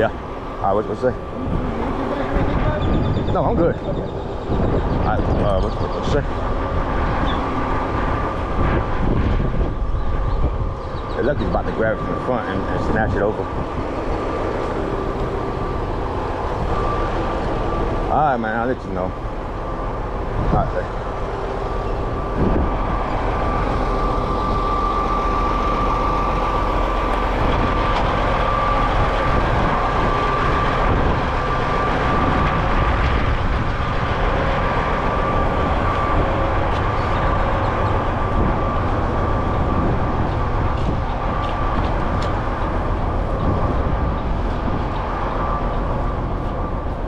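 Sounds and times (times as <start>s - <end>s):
high whine: 0.0s - 47.0s
truck engine running: 0.0s - 47.0s.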